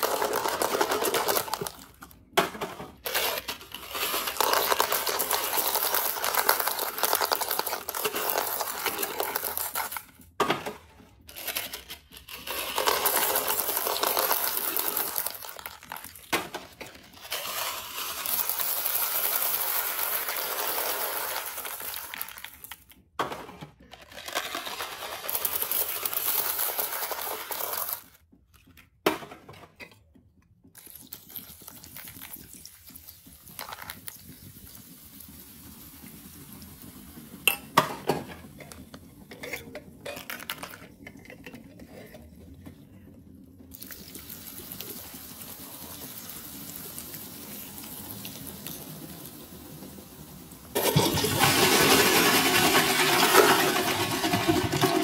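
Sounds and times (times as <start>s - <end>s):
soda pouring: 0.0s - 2.2s, 2.9s - 10.4s, 11.3s - 23.0s, 24.0s - 28.2s, 30.8s - 38.2s, 43.7s - 55.0s
hard candies rattling: 0.0s - 2.3s, 2.9s - 10.4s, 11.2s - 28.8s, 50.8s - 55.0s.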